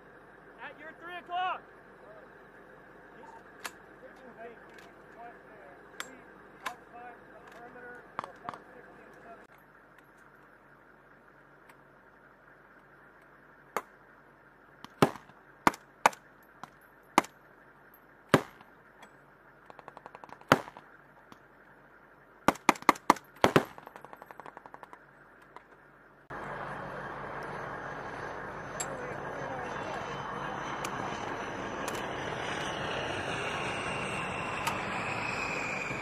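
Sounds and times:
vehicle engine running: 0.0s - 36.0s
rifle shots: 18.3s - 18.6s, 19.7s - 20.8s, 22.4s - 24.9s
distant automatic gunfire crackling: 19.6s - 21.0s, 22.4s - 25.0s.

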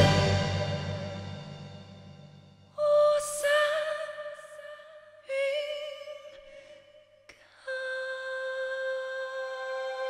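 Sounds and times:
soft musical accompaniment: 0.0s - 2.2s.

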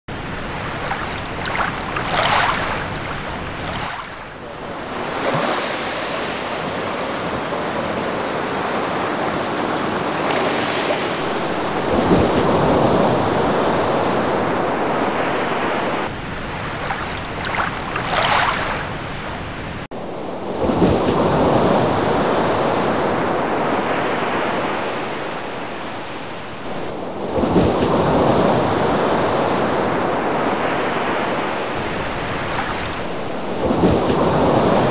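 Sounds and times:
beach surf washing in: 0.1s - 12.8s, 15.1s - 19.9s, 30.5s - 34.9s
wind buffeting microphone: 0.1s - 13.1s, 31.8s - 34.9s.

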